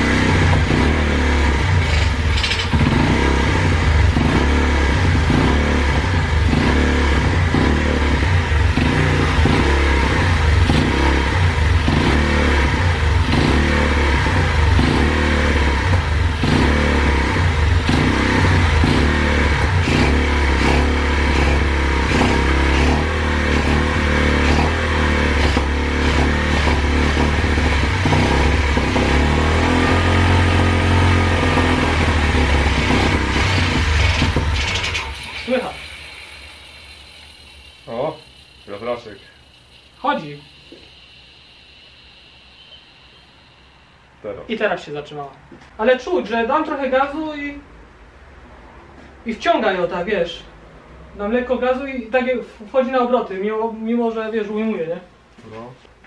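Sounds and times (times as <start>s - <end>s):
motorbike engine running: 0.0s - 43.5s.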